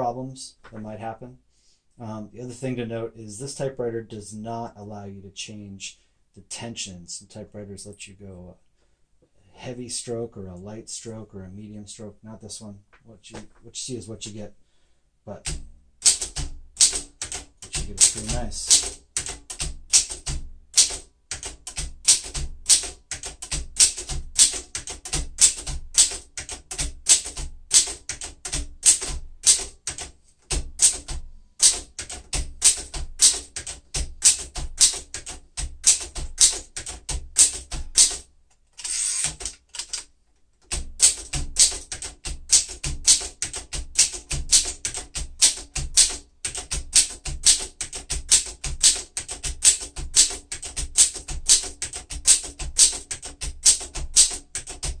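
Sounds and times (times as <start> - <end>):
manual typewriter typing: 15.4 - 55.0.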